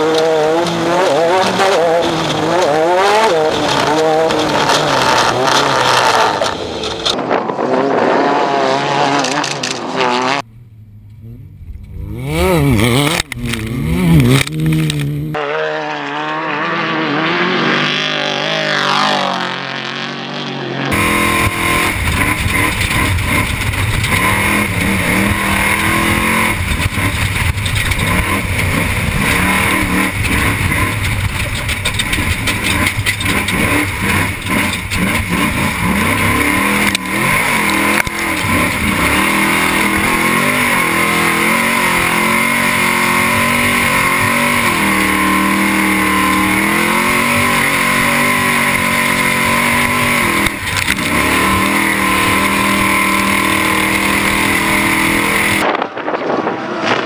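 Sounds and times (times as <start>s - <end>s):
rattles and knocks: 26.6s - 35.5s.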